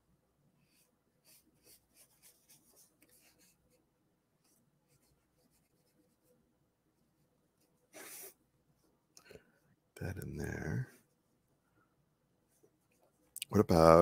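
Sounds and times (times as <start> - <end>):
paper towel rubbing on paper: 7.9 - 8.4.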